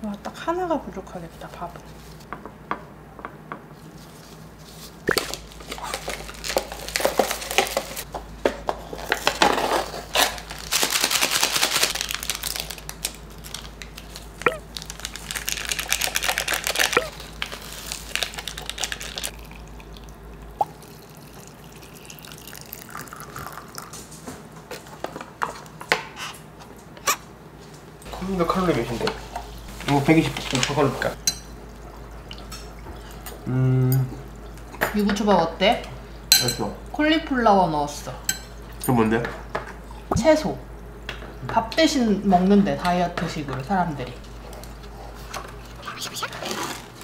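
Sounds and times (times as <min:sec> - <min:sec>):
taps clicks and crinkles of packets: 0:05.1 - 0:09.5, 0:10.1 - 0:19.3
hot water pouring into paper cups: 0:14.9 - 0:24.1.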